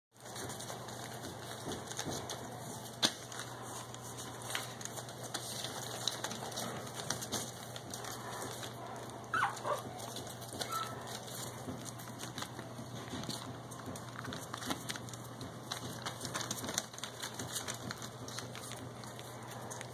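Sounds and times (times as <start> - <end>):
paws scratching newspaper: 0.2 - 19.9
puppy whimpers: 8.4 - 11.2.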